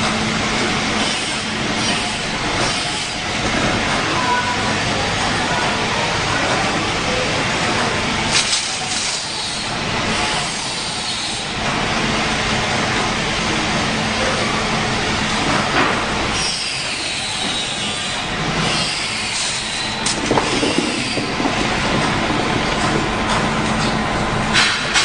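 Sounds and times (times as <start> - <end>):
machine mechanical clatter: 19.3 - 25.0.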